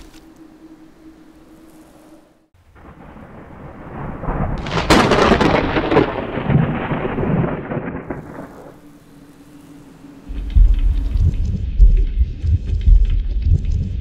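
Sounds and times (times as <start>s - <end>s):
thunder rumbling and cracking: 2.7s - 8.8s, 10.3s - 14.0s.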